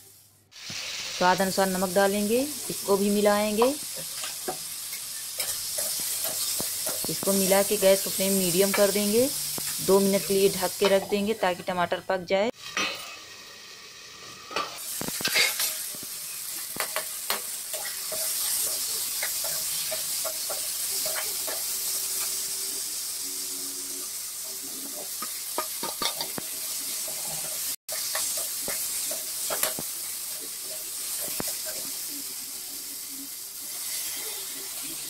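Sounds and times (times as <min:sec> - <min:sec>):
vegetables sizzling in pan: 0:00.0 - 0:35.0
spatula stirring and scraping: 0:03.9 - 0:07.3, 0:14.5 - 0:22.5, 0:24.6 - 0:32.1.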